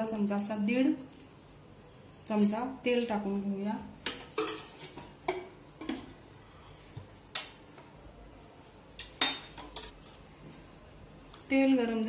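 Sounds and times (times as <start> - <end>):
spoon clinking on metal cookware: 9.0 - 10.0.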